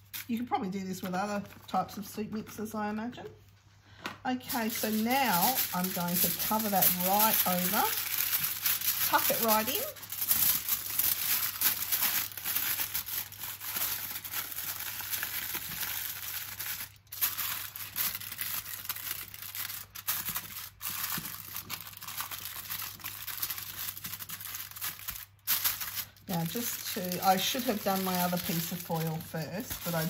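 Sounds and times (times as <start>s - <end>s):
aluminium foil crinkling: 0.0s - 2.6s, 4.4s - 30.0s.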